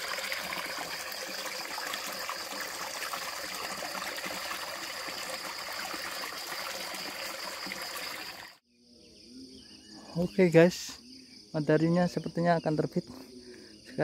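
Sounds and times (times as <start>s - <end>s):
stream running over rocks: 0.0s - 8.6s
water splashing: 0.0s - 8.6s.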